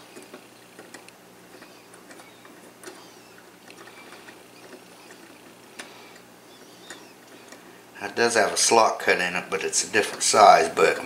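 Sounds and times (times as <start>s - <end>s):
fingers handling clock parts: 0.1s - 7.7s.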